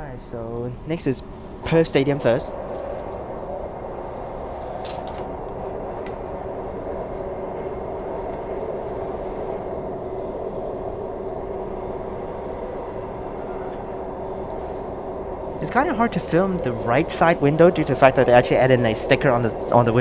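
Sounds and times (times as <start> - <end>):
steady train hum: 0.0 - 20.0
train wheels rumbling on rails: 0.0 - 20.0.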